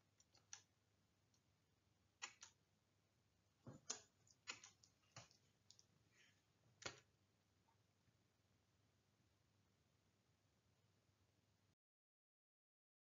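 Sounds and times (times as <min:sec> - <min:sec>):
faint clicks and taps: 0:02.2 - 0:02.6, 0:03.6 - 0:07.1.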